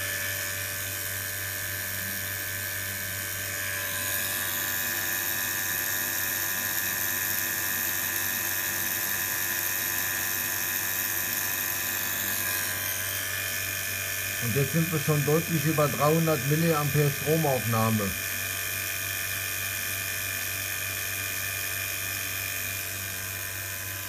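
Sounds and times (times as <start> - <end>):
vacuum pump whining: 3.2 - 7.0, 10.6 - 18.3.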